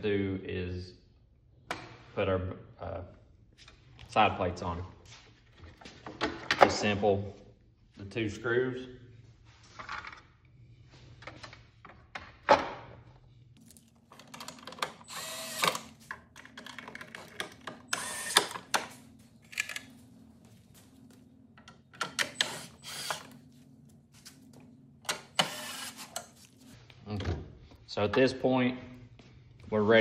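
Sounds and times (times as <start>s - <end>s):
steady low hum: 12.8s - 30.0s
plastic parts clicking and rattling: 13.7s - 20.0s.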